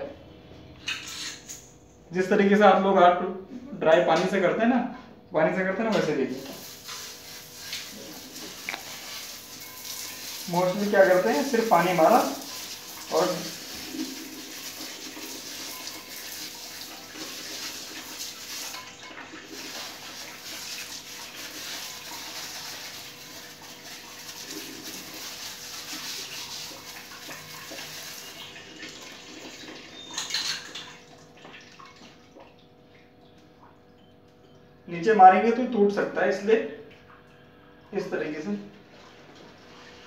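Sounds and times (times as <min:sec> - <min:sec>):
hose spraying water: 0:06.3 - 0:28.5.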